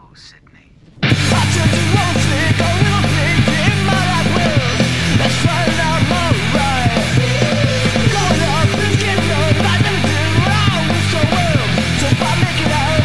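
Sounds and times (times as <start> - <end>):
punk rock band playing: 1.0 - 13.0.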